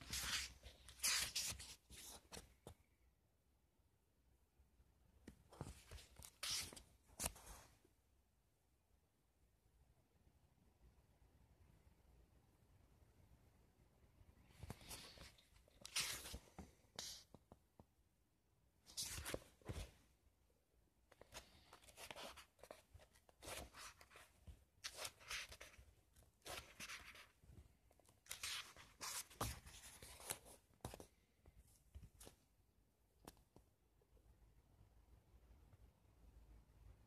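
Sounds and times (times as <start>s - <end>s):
book pages rustling: 0.0s - 2.8s, 5.3s - 7.7s, 14.5s - 17.6s, 18.9s - 20.1s, 21.1s - 32.5s.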